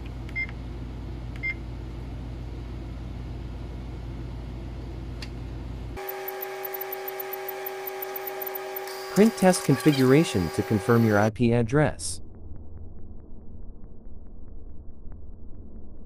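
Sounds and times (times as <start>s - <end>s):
electrical hum: 0.0s - 16.0s
machine hum with rapid ticking: 6.0s - 11.3s, 12.2s - 16.0s.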